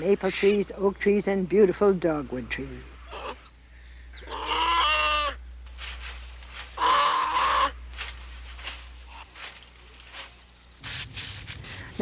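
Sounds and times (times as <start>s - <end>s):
steady low hum: 0.0s - 12.0s
animal wavering cry: 2.9s - 3.5s, 4.2s - 5.4s, 6.8s - 7.8s.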